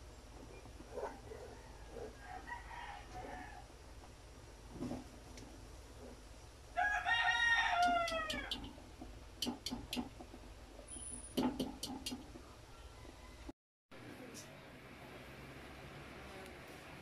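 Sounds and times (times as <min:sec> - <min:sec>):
rooster crowing: 0:01.0 - 0:03.7, 0:06.7 - 0:08.7, 0:12.7 - 0:13.5.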